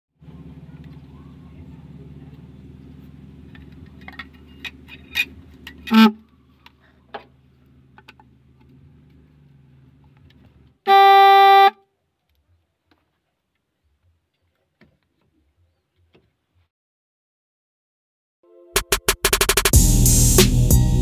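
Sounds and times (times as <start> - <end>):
car horn blast: 5.9 - 6.2, 10.9 - 11.8.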